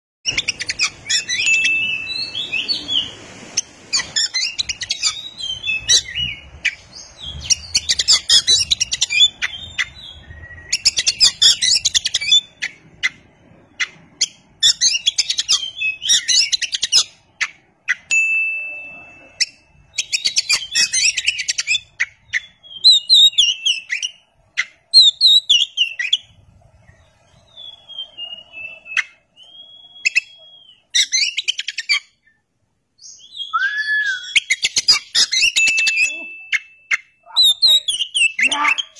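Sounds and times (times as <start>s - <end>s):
bird singing: 0.2s - 38.9s.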